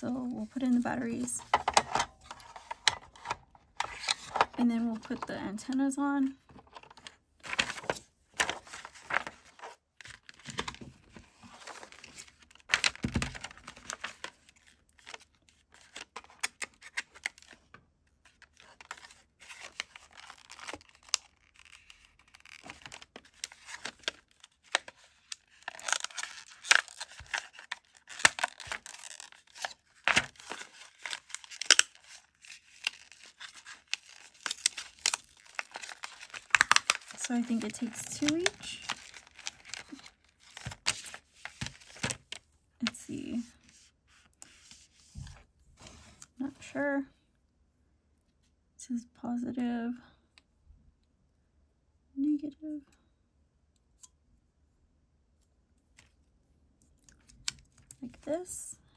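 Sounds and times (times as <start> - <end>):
paper and packaging rustling: 0.0 - 5.8, 6.4 - 46.2.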